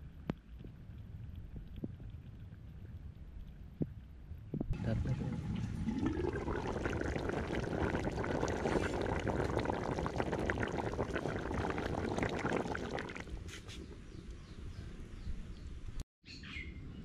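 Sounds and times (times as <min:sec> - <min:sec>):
curry bubbling in a pot: 0:00.3 - 0:13.5.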